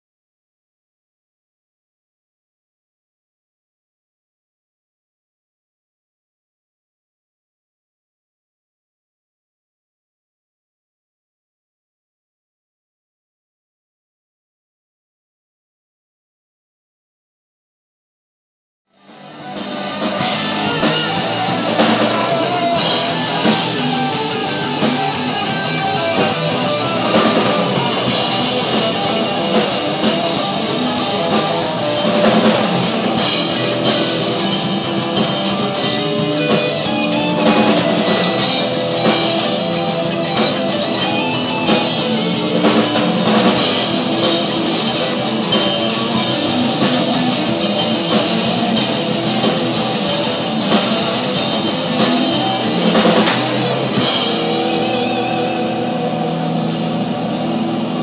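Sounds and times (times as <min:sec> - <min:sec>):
rock band playing live: 0:19.0 - 0:58.0.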